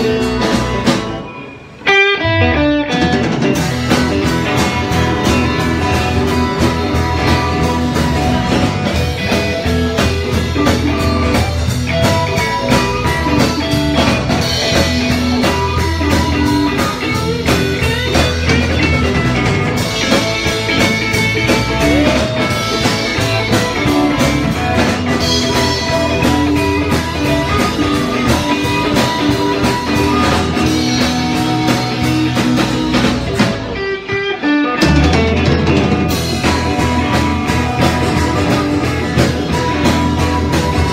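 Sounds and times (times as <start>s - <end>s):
electric guitar: 0.0s - 40.9s
live blues-rock band: 0.0s - 40.9s.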